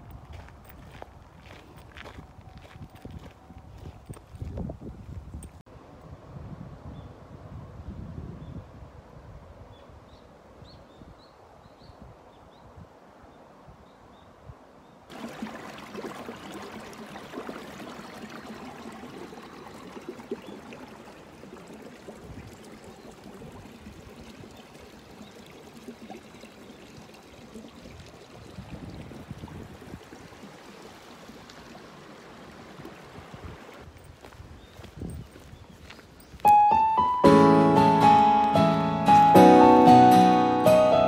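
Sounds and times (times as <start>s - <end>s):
stream water trickling over stones: 15.1s - 37.2s.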